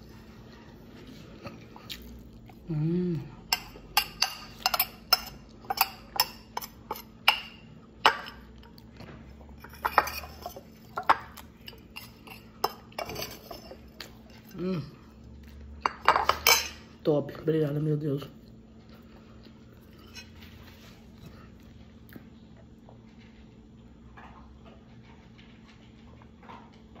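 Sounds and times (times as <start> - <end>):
person humming: 2.6 - 3.4, 14.5 - 15.0.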